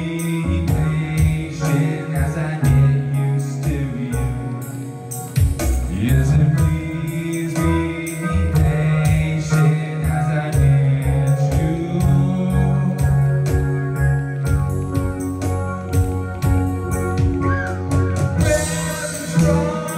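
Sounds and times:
low bass or keyboard notes: 0.0s - 19.9s
person singing: 0.0s - 19.9s
kick drum beat: 14.5s - 18.7s.

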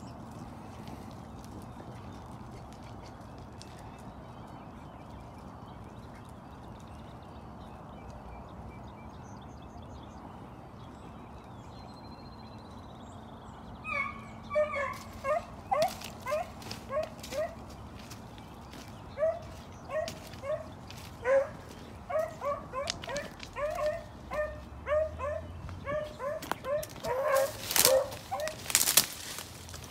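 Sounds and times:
dogs baying: 13.8s - 28.8s.

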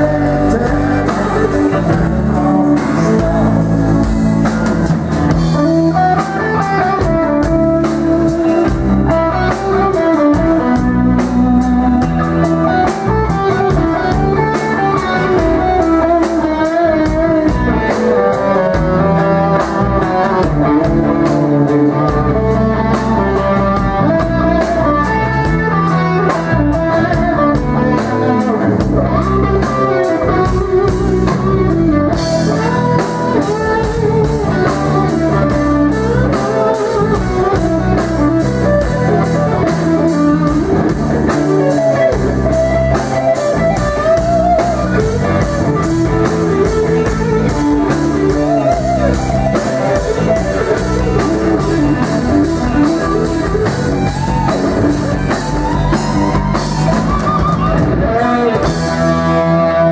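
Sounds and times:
drum kit beat: 0.0s - 59.6s
bass guitar: 0.0s - 59.9s
electric guitar lead: 0.0s - 59.9s.

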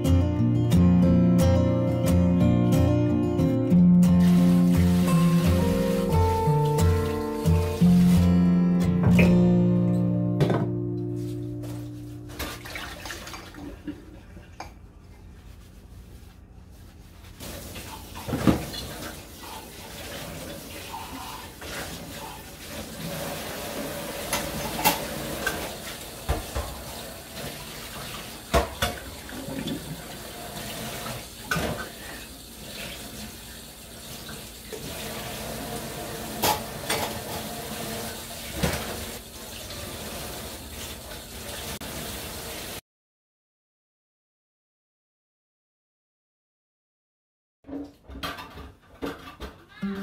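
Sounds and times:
faucet water running into sink: 4.1s - 8.6s, 12.4s - 14.0s, 17.4s - 42.8s
dishes clinking against sink: 24.2s - 27.5s, 28.5s - 30.0s, 31.4s - 32.2s, 36.3s - 37.6s.

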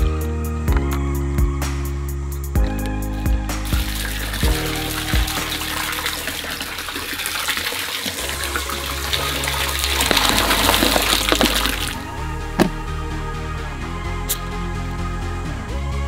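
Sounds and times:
liquid pouring into plastic barrel: 3.7s - 12.0s.

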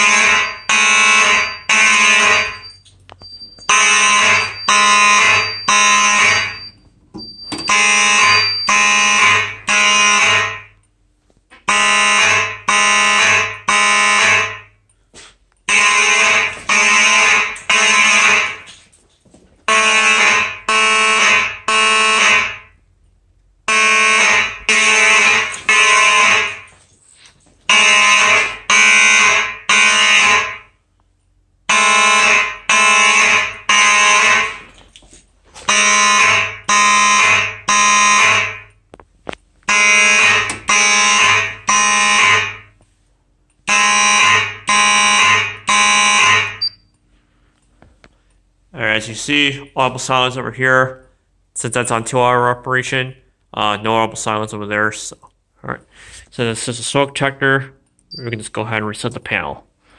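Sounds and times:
fire alarm horn blasts: 0.0s - 10.9s, 11.6s - 14.9s, 15.7s - 18.8s, 19.7s - 22.8s, 23.6s - 26.8s, 27.7s - 30.8s, 31.6s - 34.8s, 35.6s - 38.8s, 39.7s - 42.8s, 43.6s - 46.9s.

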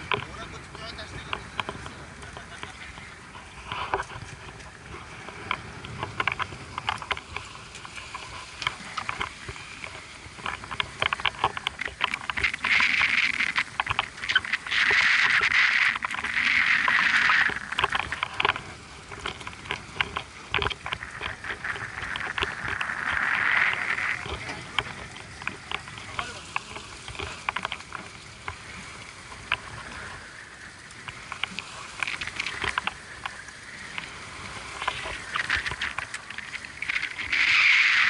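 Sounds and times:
fishing reel drag buzzing: 34.6s - 38.0s.

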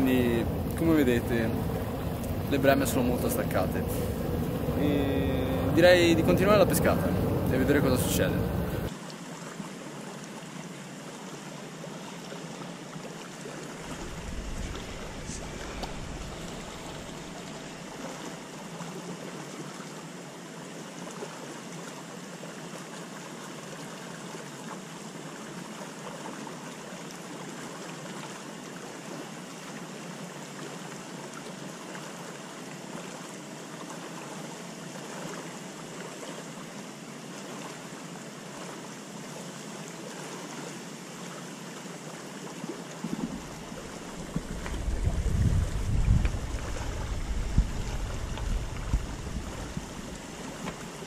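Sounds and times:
wind buffeting microphone: 0.0s - 8.9s, 13.8s - 17.6s, 43.1s - 50.3s
rushing river water: 0.0s - 51.0s.

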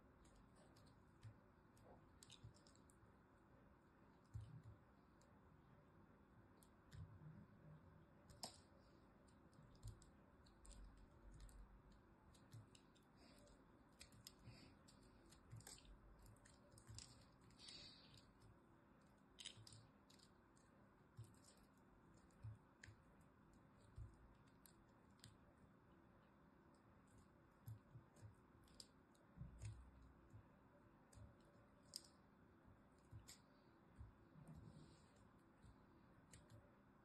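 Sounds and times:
soap flakes crackling: 9.6s - 23.0s.

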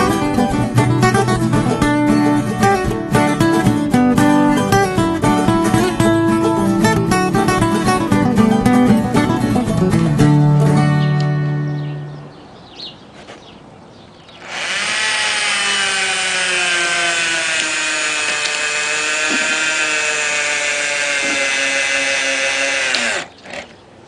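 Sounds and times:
cordless drill motor whining: 14.4s - 23.6s.

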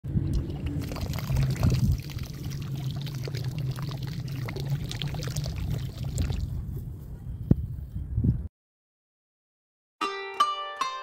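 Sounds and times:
water jet splashing onto pond: 0.2s - 6.5s.

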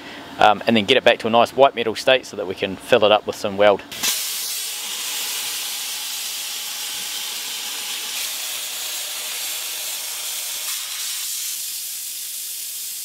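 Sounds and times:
sandblaster hissing on steel: 3.9s - 13.0s.

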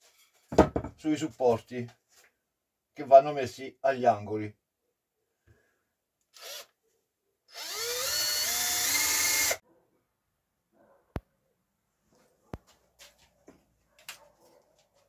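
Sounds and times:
cordless drill whine: 6.3s - 6.7s, 7.5s - 9.6s.

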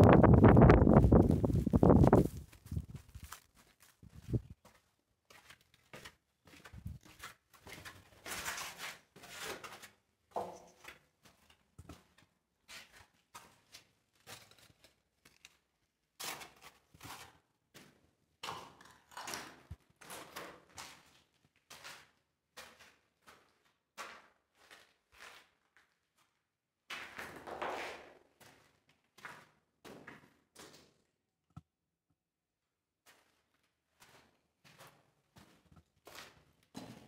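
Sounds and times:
footsteps crunching on rubble: 0.1s - 8.2s.

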